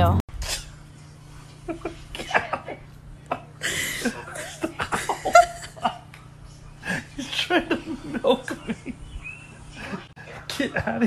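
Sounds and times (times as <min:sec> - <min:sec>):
steady low hum: 0:00.0 - 0:11.0
person laughing: 0:01.7 - 0:06.0.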